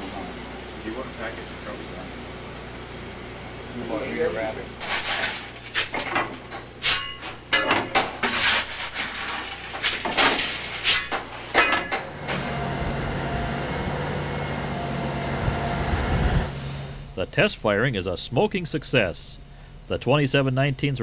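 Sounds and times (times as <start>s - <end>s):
steady rush with low hum: 0.0s - 21.0s
metal clanks and knocks: 4.9s - 12.4s.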